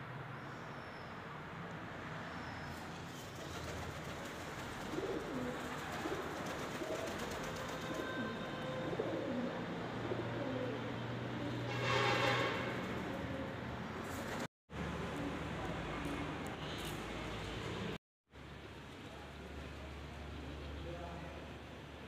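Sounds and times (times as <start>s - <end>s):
pigeons cooing: 3.8s - 11.6s, 12.9s - 13.7s.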